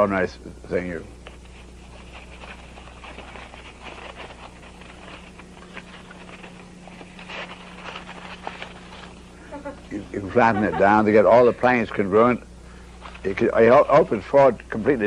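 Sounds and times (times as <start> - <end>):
steady low hum: 0.0 - 15.0
stiff paper crackling: 1.2 - 9.8, 12.7 - 15.0.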